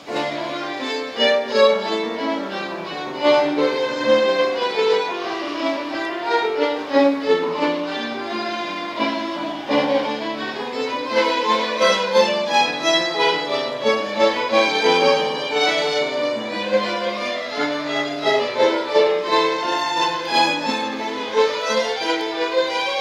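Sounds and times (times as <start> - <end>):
violins playing a tune: 0.0 - 23.0.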